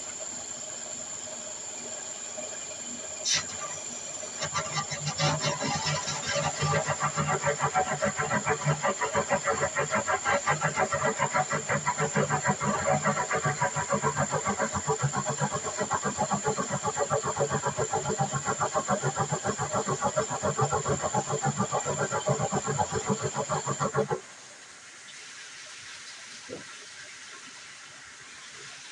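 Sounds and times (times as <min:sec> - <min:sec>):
thin high whine: 0:01.9 - 0:24.2
engine running with pulsing beat: 0:03.2 - 0:24.2.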